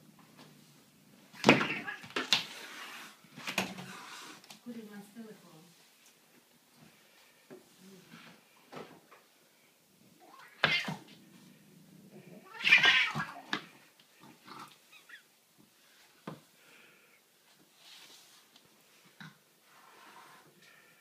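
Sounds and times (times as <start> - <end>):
cat crying: 1.4 - 2.2, 10.2 - 11.0, 12.4 - 13.5.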